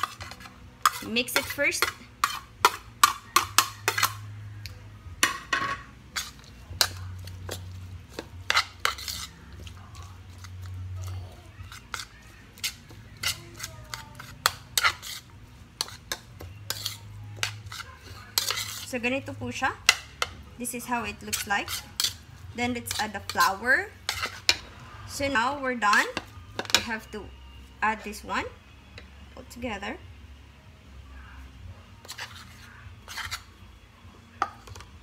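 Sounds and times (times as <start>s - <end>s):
food mixed by hand in bowl: 0.0s - 4.4s, 6.0s - 27.0s, 32.0s - 33.6s
metal spoon scraping a plate: 0.0s - 4.4s, 5.5s - 10.8s, 11.6s - 20.4s, 21.1s - 24.7s, 32.0s - 33.6s.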